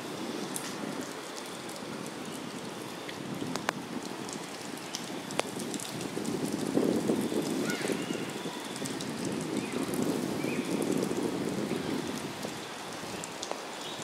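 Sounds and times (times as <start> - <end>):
rain on water and grass: 0.0 - 14.0.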